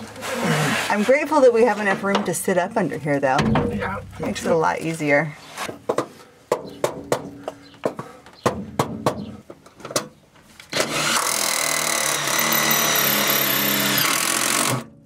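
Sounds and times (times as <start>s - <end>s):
rubber mallet knocking metal: 3.4s - 4.4s
cordless drill running: 10.7s - 14.8s.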